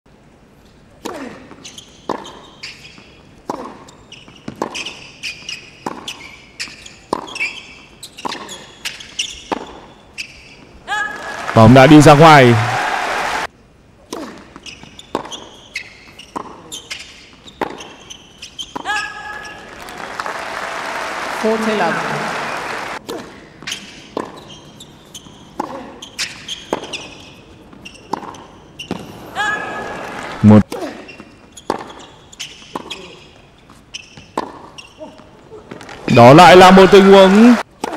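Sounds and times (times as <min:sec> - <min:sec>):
tennis balls struck with rackets: 0:01.0 - 0:02.4, 0:03.4 - 0:07.4, 0:08.2 - 0:09.9, 0:14.1 - 0:15.5, 0:16.3 - 0:18.0, 0:23.0 - 0:24.5, 0:27.7 - 0:29.2, 0:31.6 - 0:32.0, 0:34.2 - 0:34.8
sneakers squeaking on court: 0:01.2 - 0:10.8, 0:14.4 - 0:19.7, 0:23.4 - 0:29.3, 0:30.8 - 0:36.2
tennis ball hits: 0:03.4 - 0:03.8.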